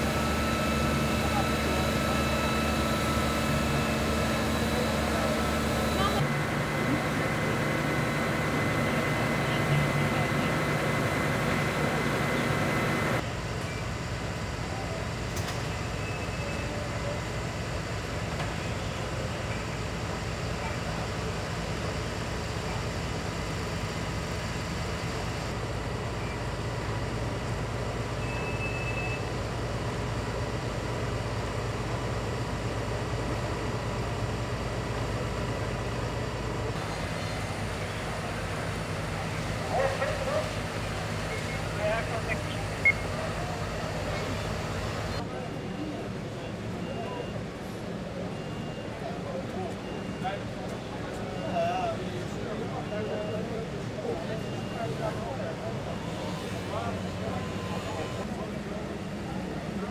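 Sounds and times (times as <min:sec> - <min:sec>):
fire engine pump drone: 0:00.0 - 0:59.9
faint high beeps: 0:28.2 - 0:29.3, 0:41.3 - 0:43.5, 0:45.5 - 0:47.5, 0:48.3 - 0:52.0, 0:52.7 - 0:55.3.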